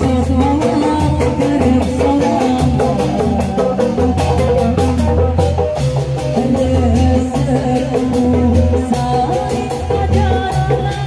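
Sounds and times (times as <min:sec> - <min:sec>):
instrumental music with percussion: 0:00.0 - 0:11.0.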